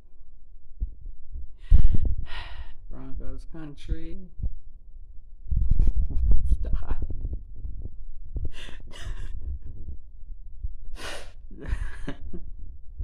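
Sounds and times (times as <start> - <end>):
man laughing: 11.5 - 12.5.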